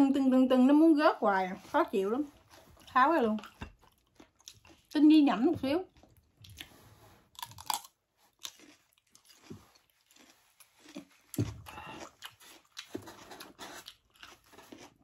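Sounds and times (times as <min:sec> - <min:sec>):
wet chewing: 0:02.2 - 0:15.0
crunching raw vegetable: 0:05.8 - 0:15.0.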